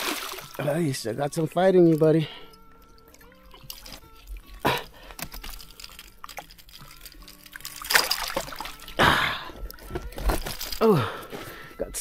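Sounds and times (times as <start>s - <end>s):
water splashing among rocks: 0.0s - 0.6s, 3.1s - 9.1s
faint background music: 0.0s - 12.0s
fish flopping at the surface: 3.1s - 9.0s.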